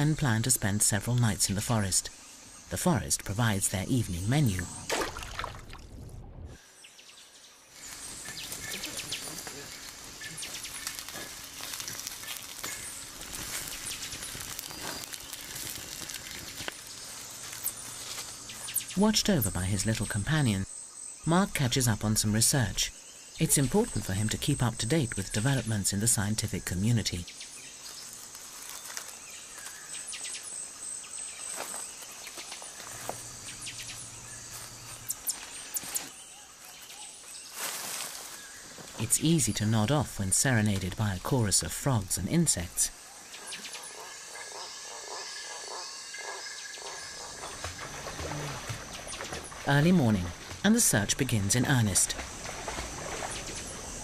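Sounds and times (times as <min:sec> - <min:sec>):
steady forest hiss: 0:00.0 - 0:06.0, 0:06.6 - 0:54.0
high insect trill: 0:07.4 - 0:54.0
small clicks and crackles: 0:07.9 - 0:18.3.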